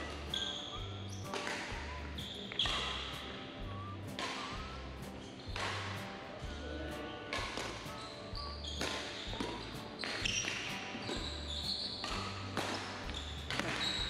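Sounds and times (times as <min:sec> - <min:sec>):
shoes squeaking on floor: 0:00.0 - 0:03.3, 0:04.1 - 0:06.0, 0:07.4 - 0:14.0
racket hitting shuttlecock: 0:01.2 - 0:03.3, 0:04.1 - 0:06.1, 0:07.3 - 0:08.0, 0:08.7 - 0:14.0.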